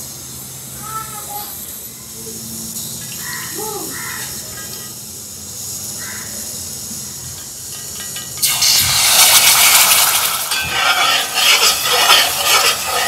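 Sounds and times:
food sizzling in a pan: 2.7s - 13.0s.

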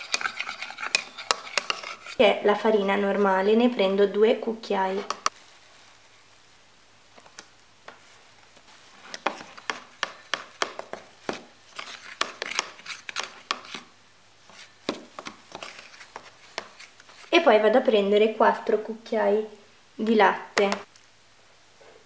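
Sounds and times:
spoon scraping plastic bowl: 0.0s - 2.4s, 4.9s - 5.3s, 9.0s - 13.9s, 14.5s - 17.4s.

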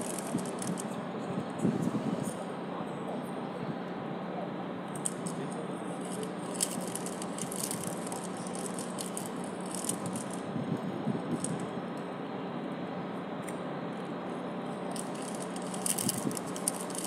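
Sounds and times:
steady background hum: 0.0s - 17.0s
food wrapper crinkling: 6.5s - 10.4s, 15.0s - 17.0s.

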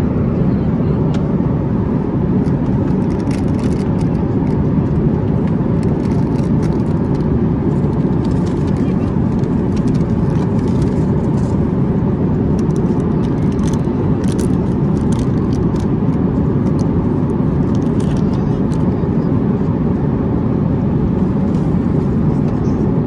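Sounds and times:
airliner cabin rumble: 0.0s - 23.0s
plastic wrapper crinkling: 12.7s - 15.9s.

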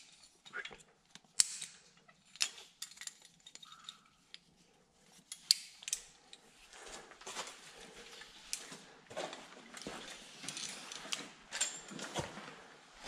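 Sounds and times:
metal climbing gear clinking: 0.0s - 8.9s, 9.7s - 12.6s.

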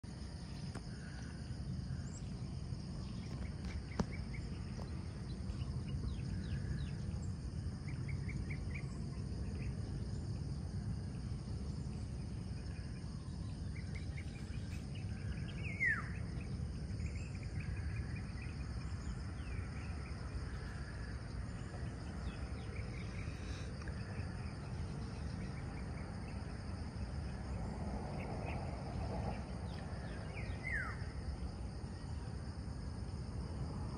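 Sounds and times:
high drone of insects: 0.0s - 33.9s
steady low rumble: 0.0s - 33.9s
downward-sweeping whistled calls: 12.7s - 20.3s, 30.0s - 31.1s.

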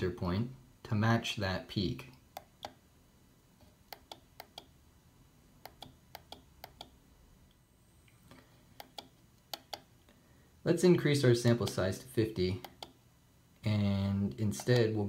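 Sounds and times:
small push buttons clicking: 3.9s - 4.7s, 5.6s - 7.0s, 8.8s - 9.9s, 12.6s - 13.0s.

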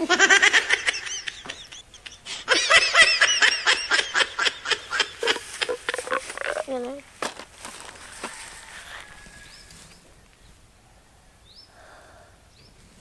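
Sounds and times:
high-pitched giggling: 0.0s - 7.0s.

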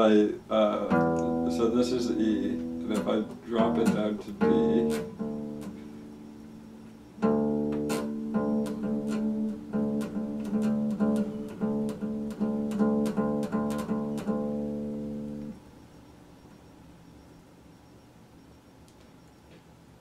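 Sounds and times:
acoustic guitar strings plucked: 0.0s - 15.6s.

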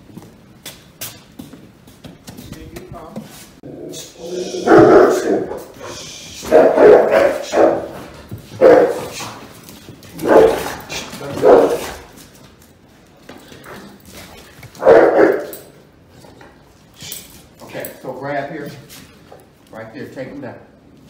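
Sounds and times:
dog barking: 4.2s - 5.7s, 6.4s - 9.2s, 10.2s - 12.0s, 14.8s - 15.6s.

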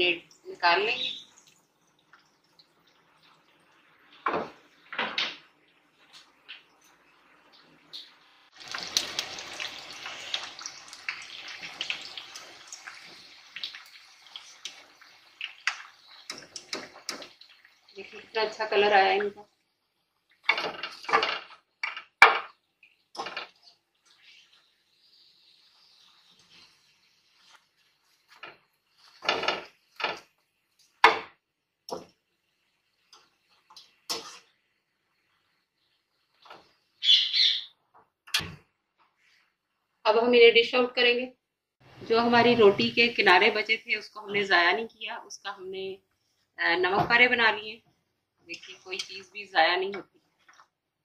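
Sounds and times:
pastries deep-frying in oil: 0.0s - 41.0s, 41.8s - 51.0s.

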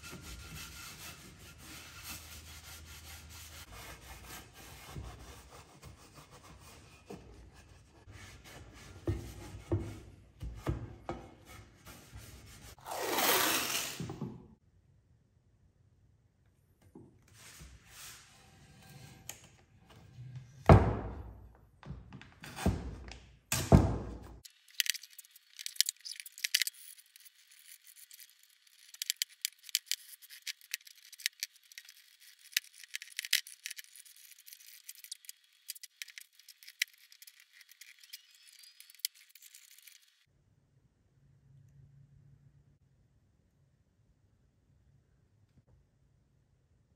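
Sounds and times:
tape ripping off roll: 12.8s - 14.2s
tape crackling and clicking: 24.4s - 40.2s.

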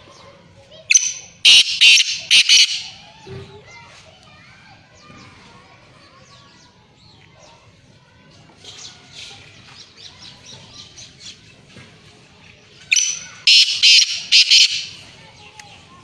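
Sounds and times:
bird chirping: 0.0s - 3.0s, 12.7s - 15.9s
bird shrill call: 0.9s - 3.0s, 12.9s - 15.0s.

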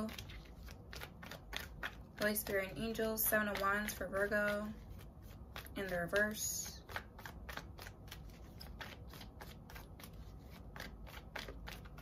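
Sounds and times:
cards being shuffled: 0.0s - 12.0s.

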